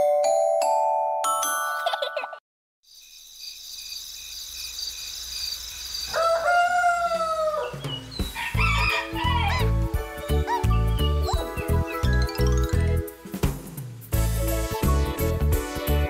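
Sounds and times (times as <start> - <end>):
bouncy children's music: 0.0 - 2.4, 7.7 - 16.0
mallet chime jingle: 0.0 - 2.4, 10.7 - 13.1
bird chirps: 2.9 - 6.2, 7.6 - 8.6, 10.5 - 12.9
cartoon rooster crowing: 6.1 - 7.8, 8.4 - 9.7.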